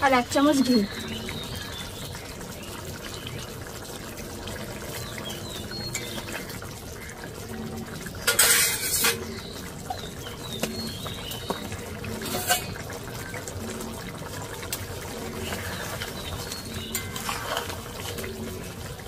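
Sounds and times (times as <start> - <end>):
curry bubbling: 0.0 - 19.0
loud scrape or clatter: 8.3 - 9.2
metal spoon stirring: 8.3 - 9.2, 12.3 - 12.8, 16.5 - 18.2.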